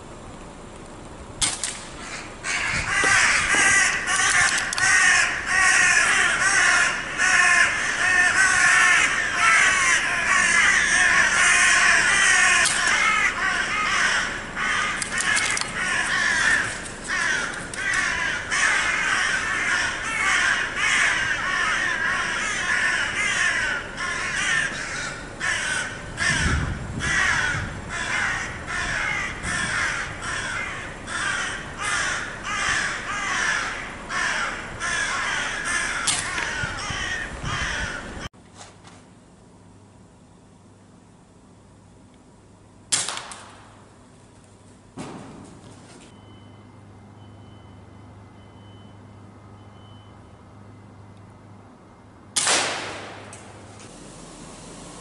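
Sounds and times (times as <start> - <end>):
crows cawing: 2.0 - 38.3.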